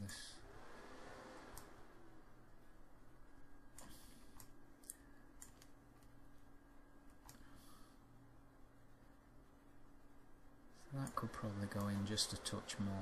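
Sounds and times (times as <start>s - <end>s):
faint steady hum: 0.0s - 13.0s
faint computer mouse clicks: 3.7s - 6.2s.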